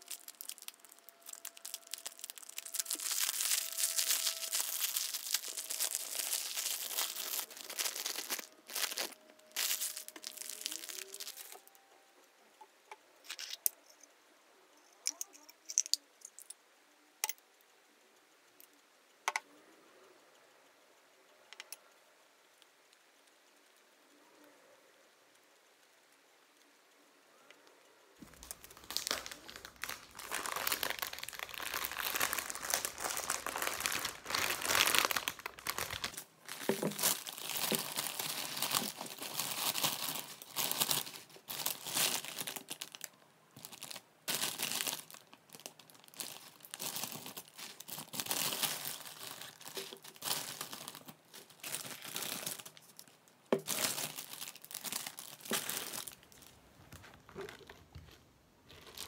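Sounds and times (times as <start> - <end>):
plastic bag crinkling: 0.0 - 11.8, 13.2 - 13.8, 15.0 - 16.5, 28.2 - 59.0.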